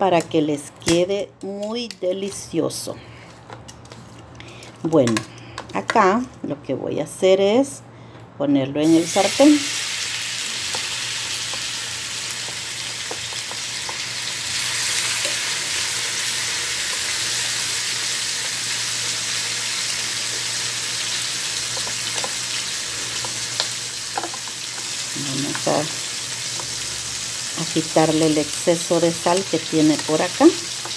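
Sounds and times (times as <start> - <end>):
oil sizzling in a frying pan: 8.8 - 30.9.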